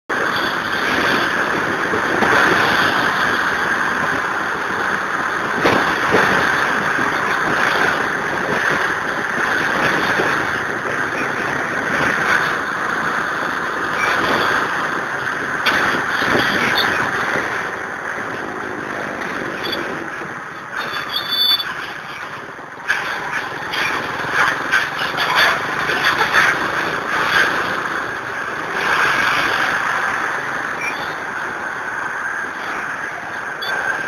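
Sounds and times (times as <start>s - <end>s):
wind and road noise: 0.0s - 34.0s.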